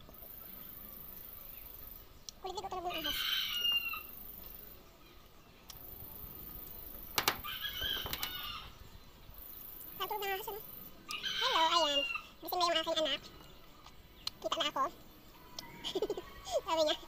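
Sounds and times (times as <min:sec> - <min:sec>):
chicken calls: 0:02.6 - 0:04.6, 0:06.2 - 0:08.8, 0:11.1 - 0:12.4.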